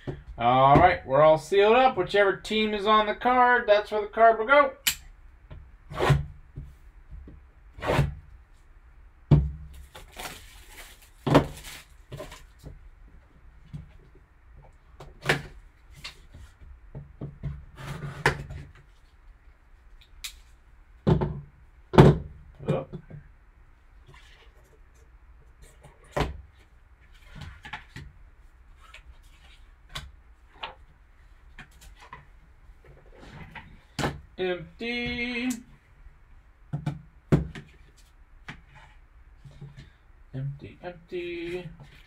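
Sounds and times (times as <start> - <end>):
plastic wrap rustling: 9.7 - 12.6.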